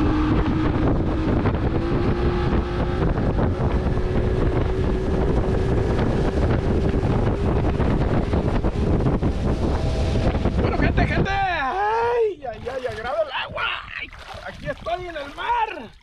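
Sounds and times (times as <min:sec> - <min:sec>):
outboard motor running: 0:00.0 - 0:16.0
wind buffeting microphone: 0:00.0 - 0:16.0.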